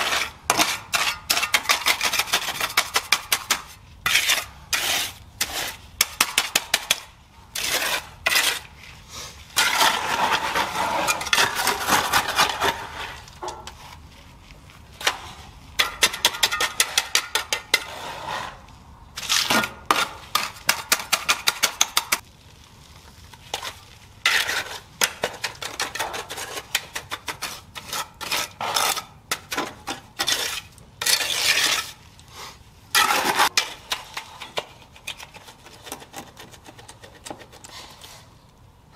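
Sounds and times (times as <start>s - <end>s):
trowel scraping wet concrete: 0.0s - 22.2s, 23.5s - 32.1s, 32.9s - 38.4s.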